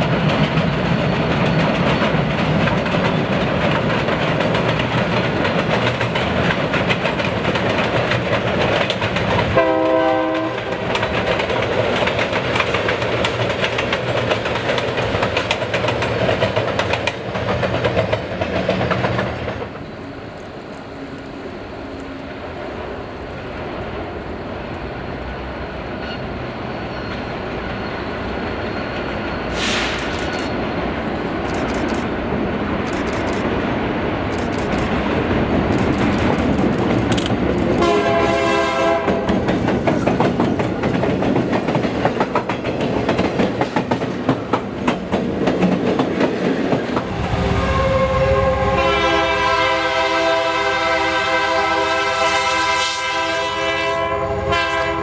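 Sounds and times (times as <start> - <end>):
wheels clicking over rail joints: 0.0 - 9.6, 10.5 - 20.5, 34.2 - 37.9, 38.9 - 47.1
diesel locomotive engine: 0.0 - 55.0
train air horn: 9.6 - 10.8, 37.8 - 39.3, 47.1 - 55.0.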